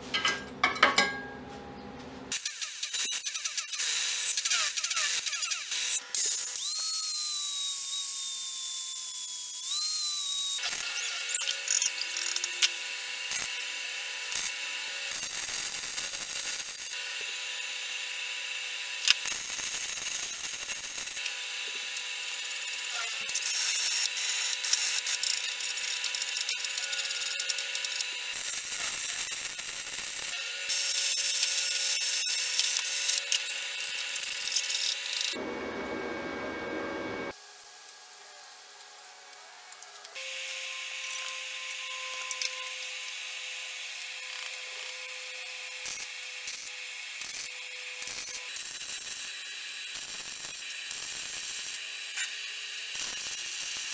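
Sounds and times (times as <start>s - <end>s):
shop tool sounds: 0.0s - 38.0s, 38.8s - 53.9s
angle grinder whining: 2.3s - 37.4s.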